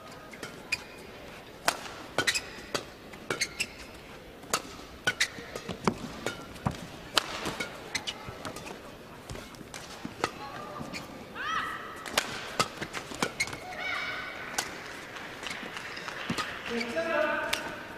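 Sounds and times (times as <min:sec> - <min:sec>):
low crowd murmur: 0:00.0 - 0:17.9
shoe squeaks on court floor: 0:00.3 - 0:01.1, 0:02.2 - 0:04.0, 0:05.1 - 0:06.5, 0:07.5 - 0:09.5, 0:10.1 - 0:11.2, 0:12.6 - 0:14.0
rackets striking shuttlecock: 0:01.6 - 0:11.0, 0:12.0 - 0:13.8, 0:14.5 - 0:17.8.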